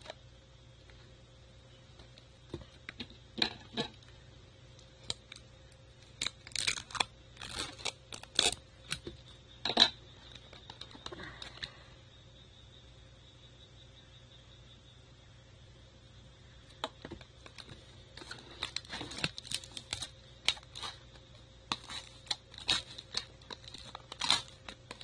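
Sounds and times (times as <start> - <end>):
cardboard and paper handling: 17.0 - 25.0.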